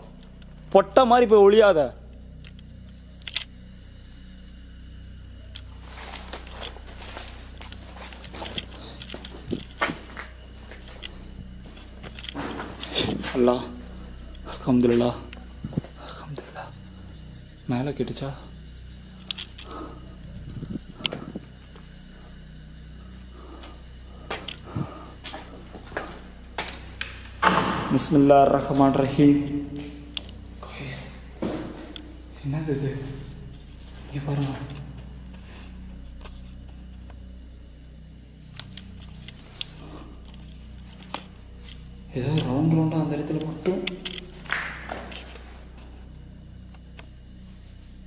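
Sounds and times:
faint high whine: 0.0s - 48.0s
steady low hum: 0.0s - 48.0s
thin high steady tones: 0.0s - 48.0s
footsteps and camera handling clicks: 2.4s - 3.5s, 5.5s - 13.3s, 19.2s - 19.7s, 24.3s - 27.6s, 29.8s - 30.4s, 38.5s - 42.6s, 43.3s - 45.9s.

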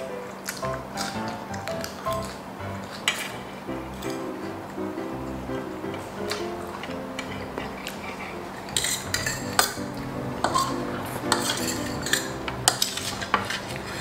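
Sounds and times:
soft background music: 0.0s - 14.0s
cutlery clinking on metal tray: 7.2s - 9.8s, 10.4s - 14.0s.

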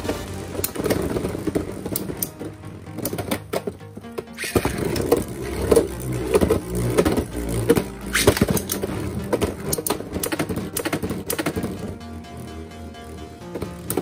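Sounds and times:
electronic background music: 0.0s - 14.0s.

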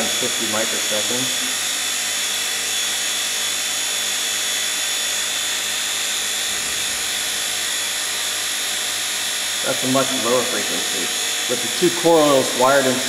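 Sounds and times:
high-pitched electrical whine: 0.0s - 13.0s.

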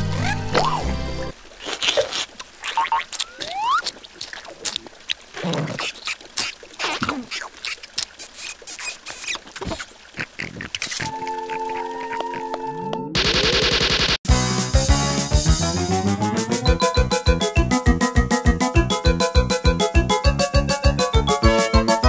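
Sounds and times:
squeaky cartoon vocal sounds: 2.6s - 3.9s, 5.4s - 12.8s.

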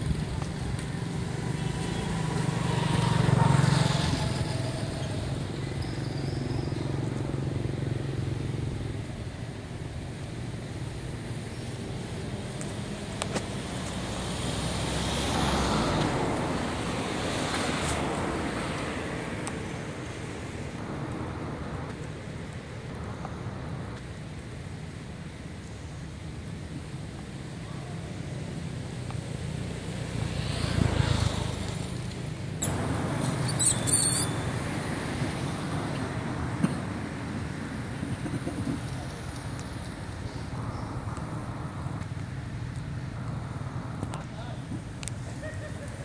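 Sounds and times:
outdoor rumble and hiss: 0.0s - 46.0s
monkey squeaking: 32.6s - 34.5s.

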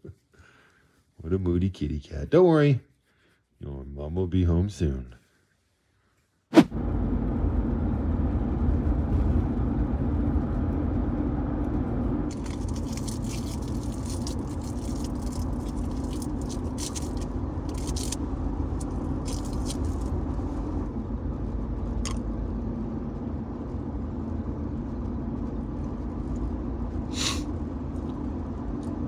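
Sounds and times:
road and engine rumble: 6.6s - 29.0s.

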